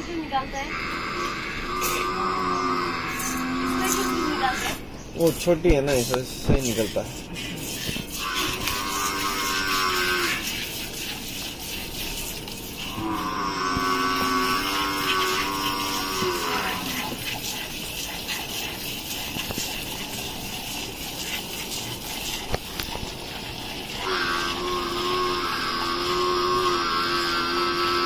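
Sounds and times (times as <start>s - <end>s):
cow mooing: 0.6s - 4.8s, 8.1s - 10.4s, 12.8s - 17.1s, 24.0s - 28.0s
milk squirting into steel bowl: 3.1s - 28.0s.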